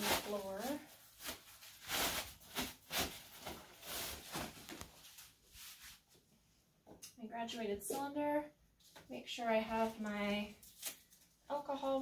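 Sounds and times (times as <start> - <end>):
plastic pad rustling: 0.0 - 6.2, 9.7 - 12.0.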